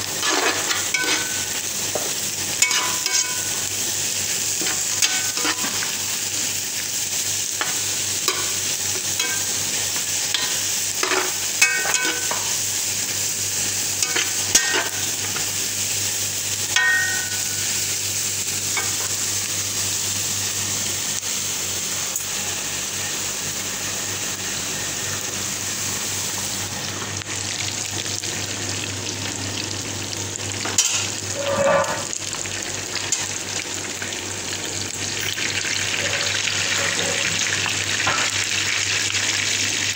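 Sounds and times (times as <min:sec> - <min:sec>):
fish frying in oil: 0:00.0 - 0:39.9
food sizzling in oil: 0:00.0 - 0:39.9
spatula scraping a pan: 0:00.1 - 0:01.5, 0:02.6 - 0:03.5, 0:04.6 - 0:05.9, 0:10.4 - 0:12.5, 0:30.8 - 0:32.2, 0:36.0 - 0:37.4.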